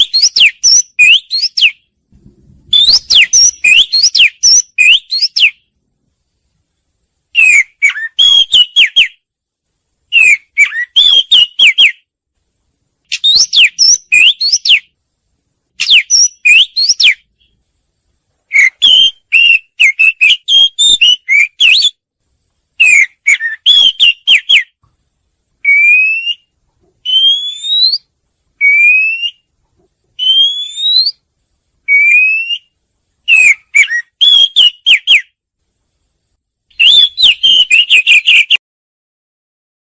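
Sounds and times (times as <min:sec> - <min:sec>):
bird song whistled phrases: 0:00.0 - 0:01.9, 0:02.7 - 0:05.7, 0:07.3 - 0:09.2, 0:10.1 - 0:12.1, 0:13.1 - 0:15.0, 0:15.8 - 0:17.6, 0:18.5 - 0:22.0, 0:22.8 - 0:24.8, 0:25.6 - 0:29.5, 0:30.2 - 0:31.2, 0:31.8 - 0:35.4, 0:36.7 - 0:38.6
single rising bird whistles: 0:02.7 - 0:05.6, 0:25.6 - 0:29.5, 0:30.2 - 0:31.2, 0:31.9 - 0:35.2, 0:36.8 - 0:38.6.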